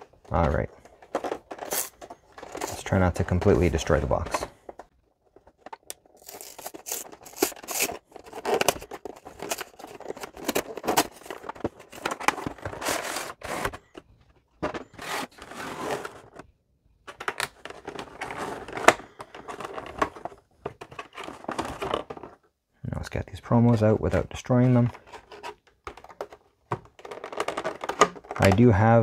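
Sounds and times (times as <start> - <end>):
plastic tray crinkling: 0.2 - 14.0, 24.0 - 29.0
cardboard packaging being pried open: 6.2 - 11.4.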